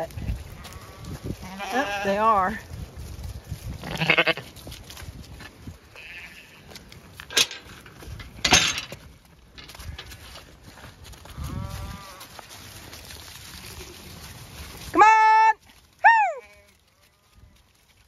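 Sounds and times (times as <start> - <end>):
sheep moving about: 0.0 - 18.0
sheep bleating: 0.2 - 2.6, 3.8 - 4.5, 5.9 - 6.8, 11.2 - 12.4
metal gate clanking: 7.2 - 9.0.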